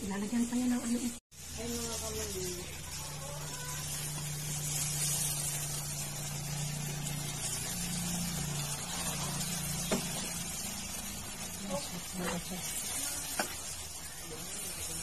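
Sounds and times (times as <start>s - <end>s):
mixture sizzling in a pot: 0.0s - 15.0s
wooden spatula stirring: 1.4s - 15.0s.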